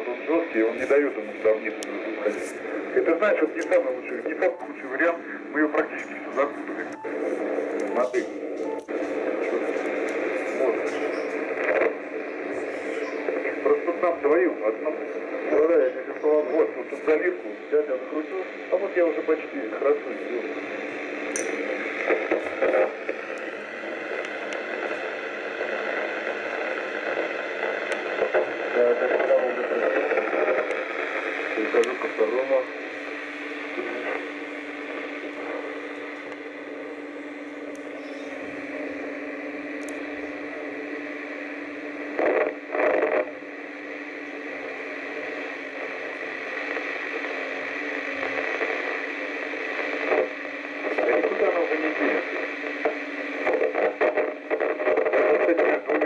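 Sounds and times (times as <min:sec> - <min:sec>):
constant low hum tone: 0:00.0 - 0:56.0
radio hiss and static: 0:00.0 - 0:56.0.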